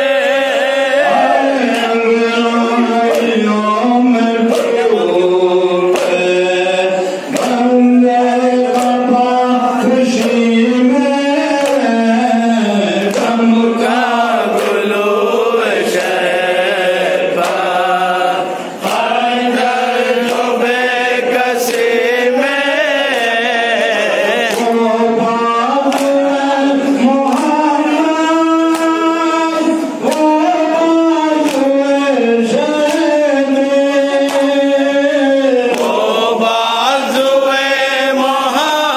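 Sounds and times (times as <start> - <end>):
men chanting a lament: 0.0 - 38.9.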